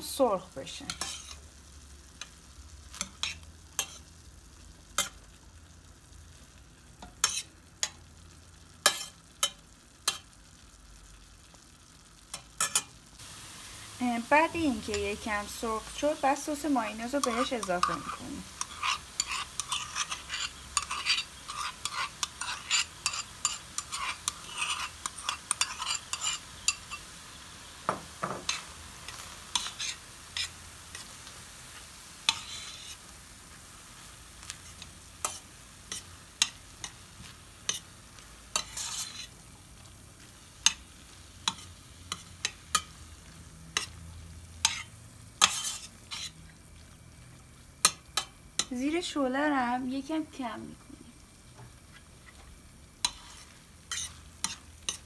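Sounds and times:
light sizzle of frying: 0.0 - 55.0
metal spoon scraping a pan: 0.9 - 1.4, 2.2 - 4.1, 5.0 - 5.3, 7.0 - 8.0, 8.8 - 10.4, 12.3 - 13.0, 14.4 - 27.1, 28.4 - 33.1, 34.4 - 37.9, 38.5 - 44.0, 44.6 - 46.4, 47.8 - 48.8, 53.0 - 55.0.

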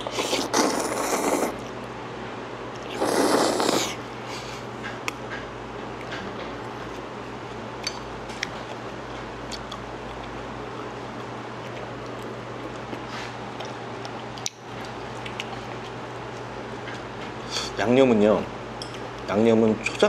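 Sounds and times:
loud noodle slurp: 0.0 - 1.7, 2.9 - 4.0
steady low hum: 0.0 - 20.0.

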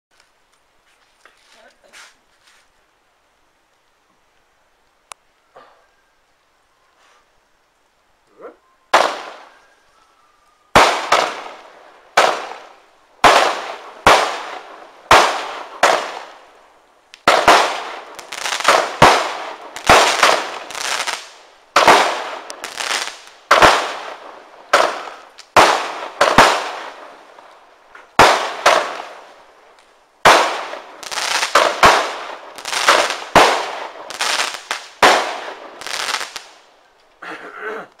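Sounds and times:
fireworks bangs: 8.9 - 9.6, 10.7 - 16.4, 17.2 - 29.4, 30.2 - 36.6.

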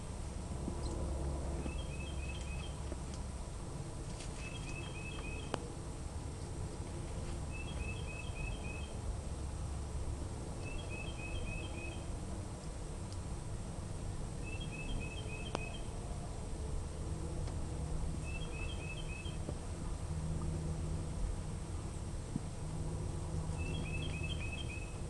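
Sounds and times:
low outdoor rumble: 0.0 - 25.0
bird chirping: 1.6 - 2.8, 4.3 - 5.6, 7.5 - 9.0, 10.6 - 12.1, 14.4 - 15.9, 18.2 - 19.5, 23.6 - 25.0.

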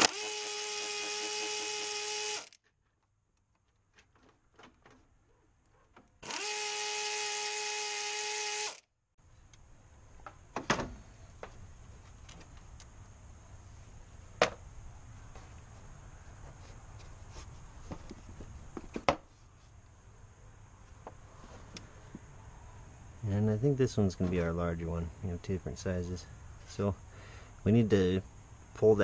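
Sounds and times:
power driver whining: 0.0 - 2.6, 6.1 - 8.9.

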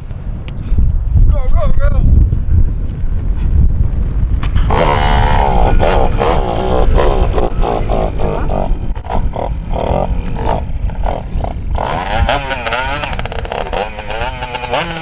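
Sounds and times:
two-stroke motocross engine revving: 4.6 - 15.0.

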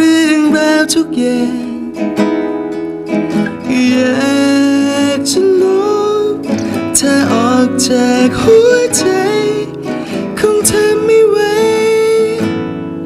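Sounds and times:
man singing a ballad: 0.0 - 2.4, 3.3 - 13.0
classical guitar: 0.0 - 13.0.

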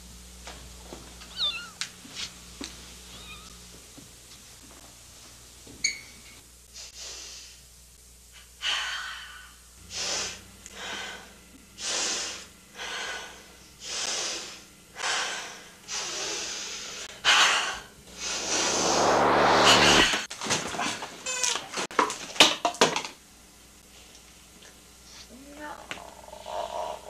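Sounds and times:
woman breathing heavily: 10.0 - 17.1.

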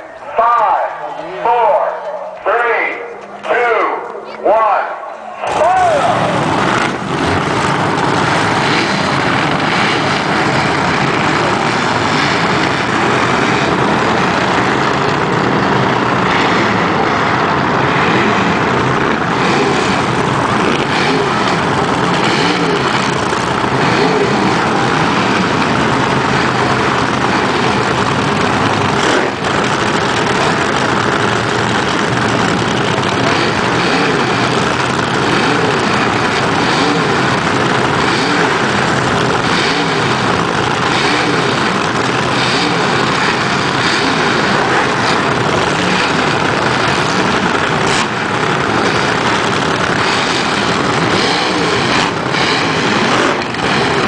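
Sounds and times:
dragster engines cackling: 0.0 - 54.0.

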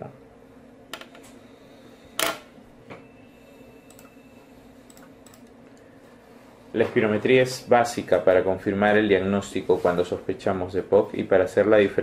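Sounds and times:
faint electrical hum: 0.0 - 12.0
computer mouse clicks: 3.9 - 4.1, 4.9 - 5.8.

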